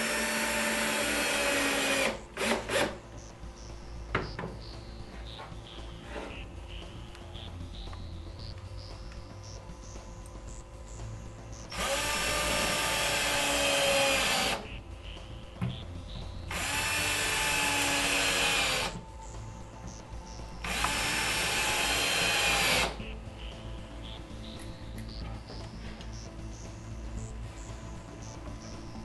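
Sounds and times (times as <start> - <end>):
drill-driver driving screws: 0.0 - 3.0, 11.7 - 14.6, 16.5 - 19.0, 20.6 - 23.0.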